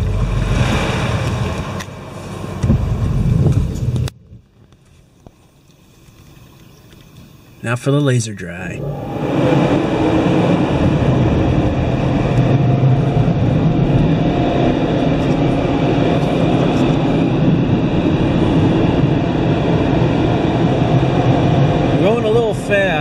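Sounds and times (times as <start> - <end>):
air dryer blowers roaring: 8.7 - 23.0.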